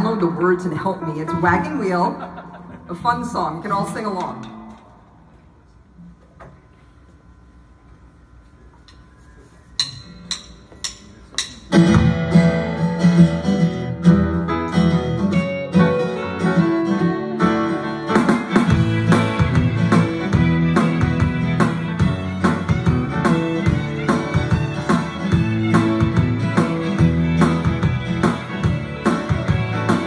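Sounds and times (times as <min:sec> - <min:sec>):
strummed guitar: 0:11.6 - 0:30.0
live band playing: 0:11.7 - 0:30.0.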